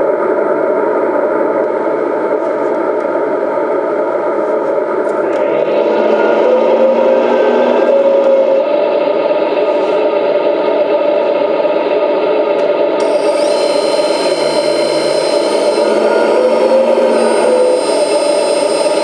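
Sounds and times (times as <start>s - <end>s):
high whine: 0.0s - 19.0s
simulated diesel engine running: 4.4s - 19.0s
whir: 5.0s - 11.1s, 12.5s - 19.0s.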